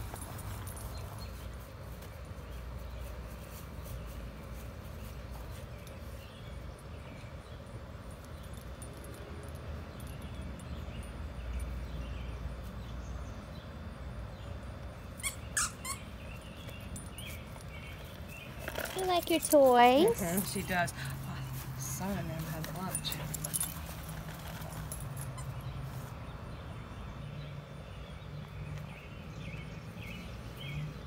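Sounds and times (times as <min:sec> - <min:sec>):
squeaky dog toy squeaking: 0:15.2 - 0:16.1.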